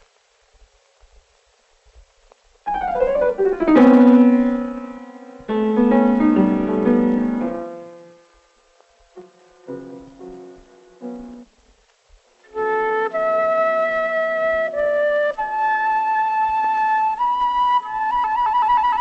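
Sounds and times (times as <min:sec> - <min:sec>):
piano music: 0:02.7 - 0:08.3, 0:09.2 - 0:11.5.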